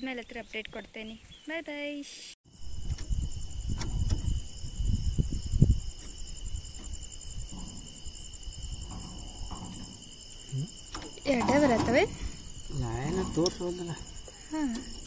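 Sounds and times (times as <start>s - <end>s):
crickets trilling: 0.0s - 15.0s
low rustles and knocks: 2.7s - 14.4s.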